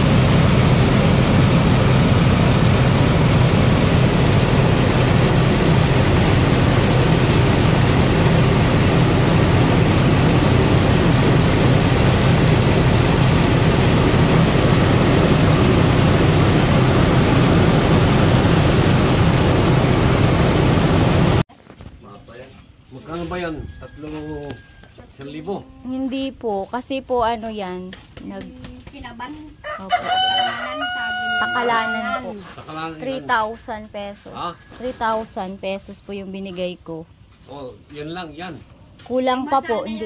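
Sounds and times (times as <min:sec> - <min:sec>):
rice mill machine humming: 0:00.0 - 0:21.4.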